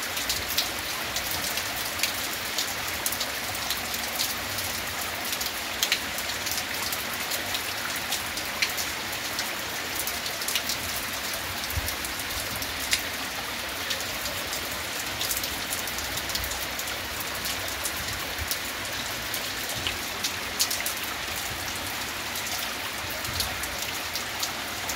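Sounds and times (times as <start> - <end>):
rain falling: 0.0 - 24.9
raindrops ticking close by: 0.0 - 24.9.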